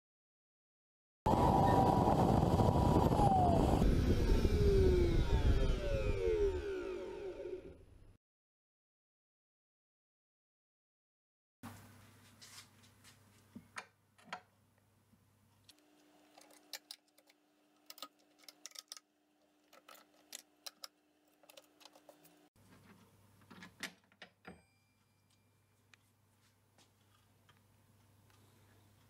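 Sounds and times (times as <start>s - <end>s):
clamps clicking and tapping: 15.7s - 24.6s.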